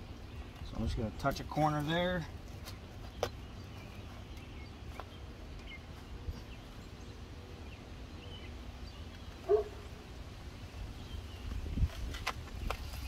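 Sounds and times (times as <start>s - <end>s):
dog bark: 9.5s - 9.8s.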